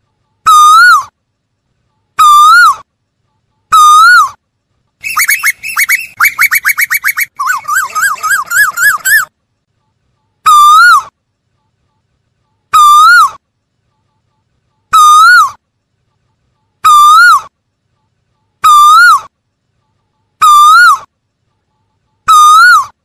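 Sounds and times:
koel calling: 5.0s - 9.3s.

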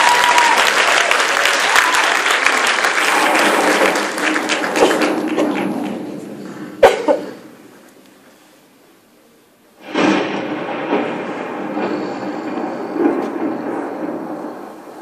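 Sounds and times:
audience clapping: 0.0s - 6.8s
sudden loud bang: 9.8s - 15.0s.

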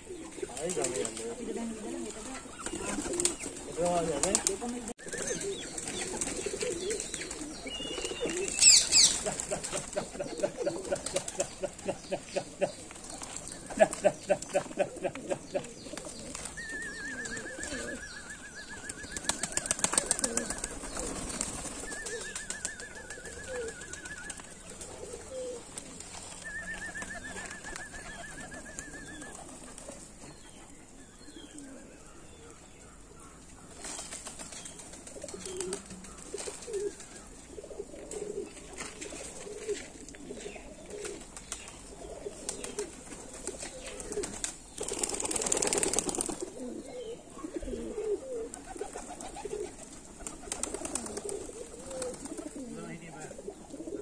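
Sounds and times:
pigeons cooing: 0.0s - 54.0s.

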